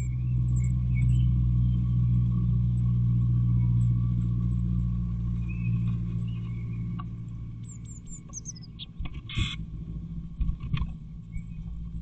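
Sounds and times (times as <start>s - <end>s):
steady low hum: 0.0s - 12.0s
bird high falling chirps: 7.7s - 9.0s.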